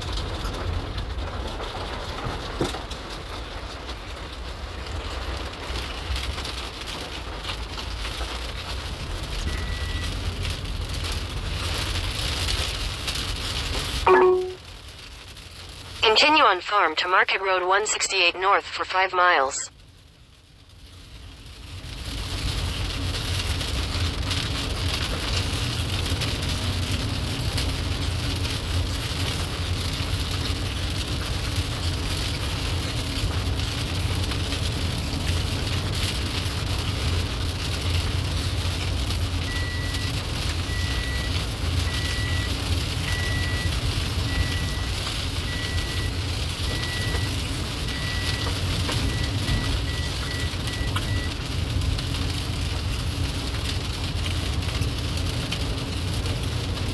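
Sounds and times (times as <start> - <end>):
vehicle road and engine rumble: 0.0 - 56.9
short high electronic beep: 14.1 - 14.6.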